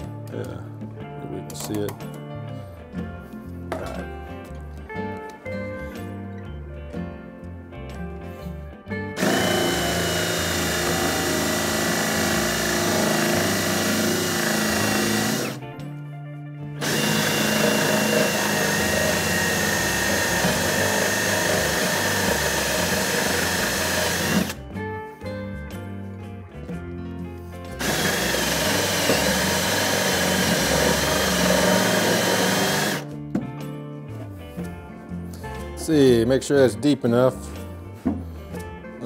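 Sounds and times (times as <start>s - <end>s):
background music: 0.0s - 39.0s
cordless drill boring wood: 9.2s - 15.6s, 16.8s - 24.6s, 27.8s - 33.0s.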